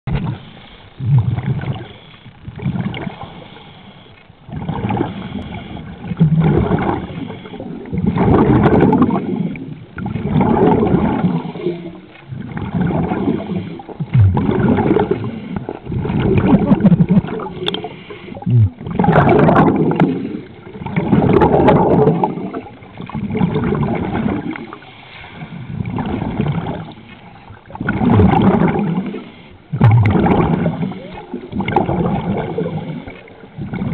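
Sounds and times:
exhaled bubbles rushing: 0:00.1 - 0:03.6, 0:04.4 - 0:33.9
diver inhaling through regulator: 0:02.9 - 0:04.1, 0:04.7 - 0:07.9, 0:11.1 - 0:12.1, 0:13.0 - 0:16.1, 0:17.4 - 0:18.8, 0:24.6 - 0:26.8, 0:28.8 - 0:29.8.

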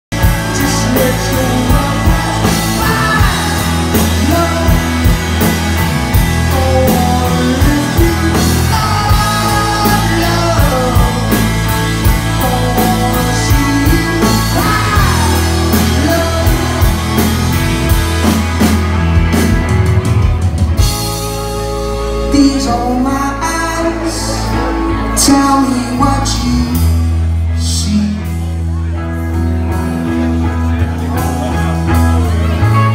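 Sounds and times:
live rock band playing: 0:00.0 - 0:32.9
person singing: 0:00.2 - 0:18.3, 0:21.2 - 0:29.0.

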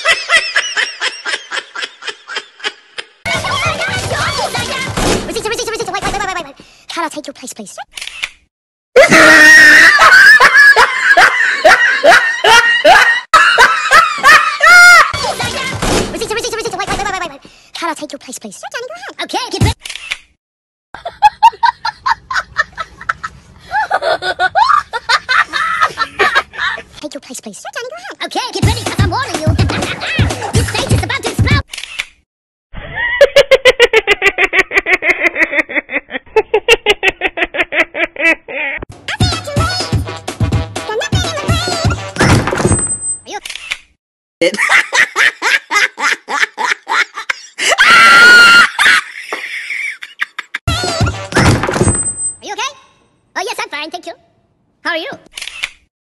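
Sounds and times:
high-pitched laughing: 0:09.0 - 0:15.6, 0:21.0 - 0:27.0, 0:29.2 - 0:31.6, 0:32.8 - 0:38.9, 0:44.4 - 0:51.2.

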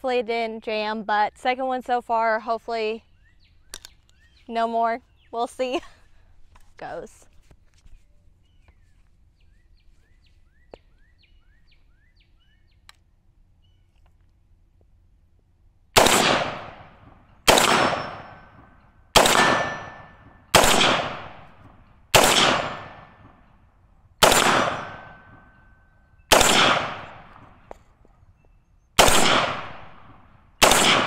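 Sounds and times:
rifle shots with echo: 0:16.0 - 0:23.5, 0:24.2 - 0:25.6, 0:26.3 - 0:27.8, 0:29.0 - 0:31.0.

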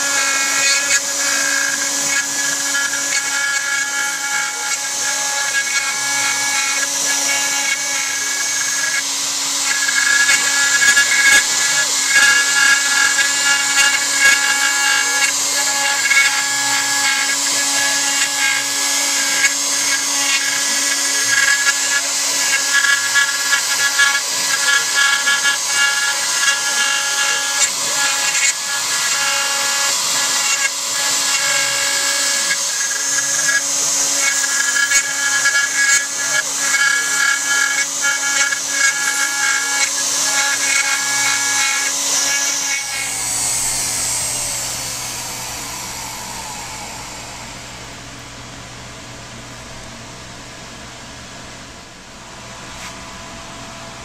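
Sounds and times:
router spindle whining: 0:00.0 - 0:54.0
bit cutting wood hiss: 0:22.4 - 0:48.4.

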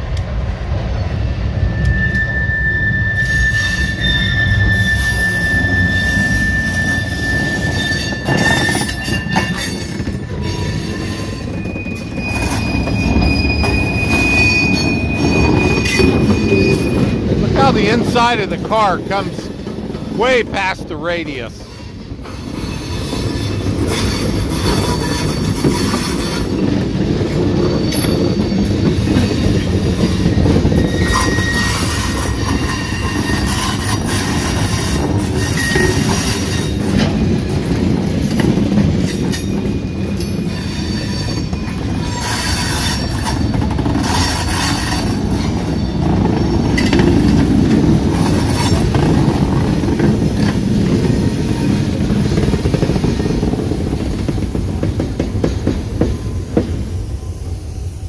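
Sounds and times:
steel wheels rumbling on track: 0:00.0 - 0:58.0
high flange squeals: 0:01.0 - 0:18.6, 0:27.5 - 0:37.5.

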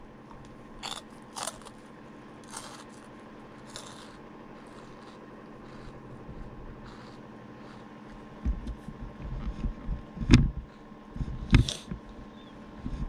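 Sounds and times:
faint steady hum: 0:00.0 - 0:13.0
crunchy snack being chewed: 0:00.8 - 0:08.3, 0:11.5 - 0:12.0.

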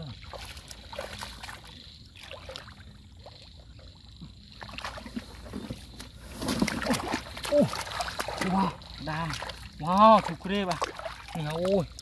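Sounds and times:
hands splashing in muddy water: 0:06.4 - 0:12.0.

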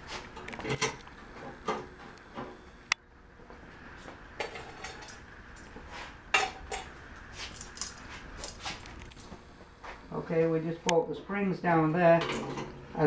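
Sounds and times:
metal tools clinking and clanking: 0:07.5 - 0:08.6.

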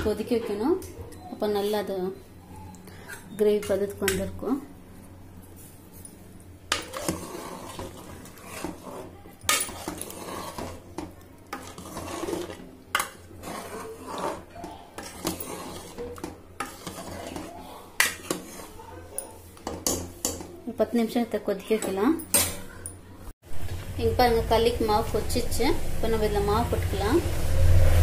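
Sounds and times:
ladle scraping metal pot: 0:06.7 - 0:18.9.

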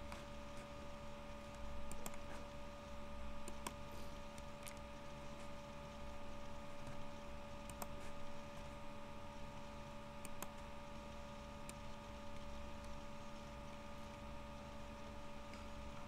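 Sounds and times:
electrical hum and hiss: 0:00.0 - 0:16.0
computer mouse clicks: 0:01.5 - 0:02.4, 0:03.4 - 0:04.8, 0:07.6 - 0:08.2, 0:10.2 - 0:10.6, 0:11.6 - 0:13.0.

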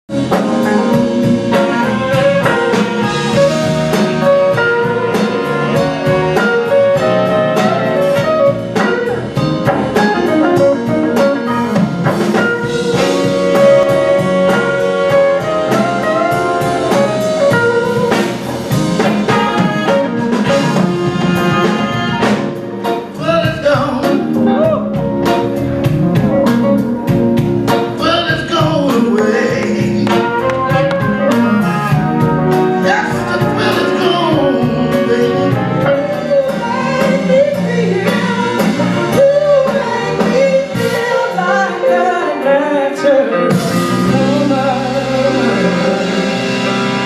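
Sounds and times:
blues band music: 0:00.1 - 0:47.0
drum kit beat: 0:00.1 - 0:47.0
electric guitar: 0:00.1 - 0:47.0.

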